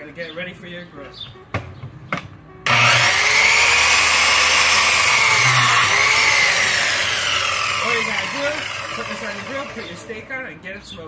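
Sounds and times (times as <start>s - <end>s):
miter saw cutting wood: 2.7s - 10.3s.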